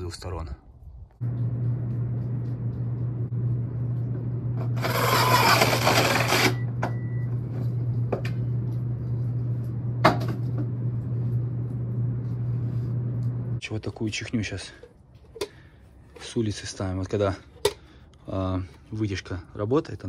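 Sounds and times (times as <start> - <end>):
steady low hum: 0.5 - 20.0
power drill cutting wood: 4.8 - 6.6.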